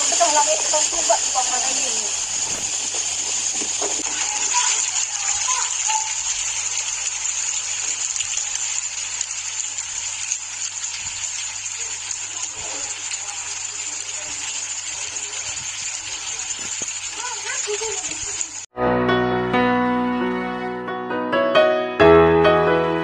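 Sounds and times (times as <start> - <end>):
ash and grit falling on roofs: 1.0 - 6.1.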